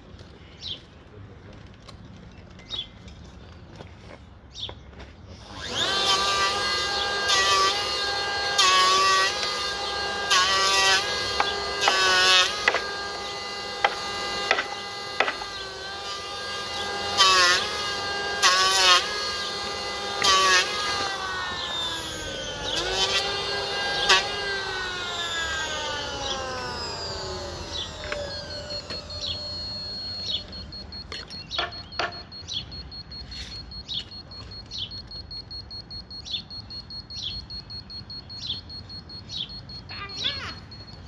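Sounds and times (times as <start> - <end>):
motor whine winding down: 5.4 - 41.0
short high chirps: 27.7 - 41.0.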